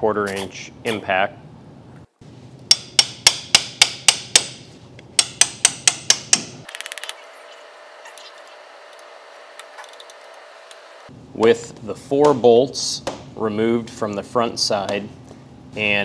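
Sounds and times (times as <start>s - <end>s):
hammer striking metal wrench: 2.7s - 6.7s.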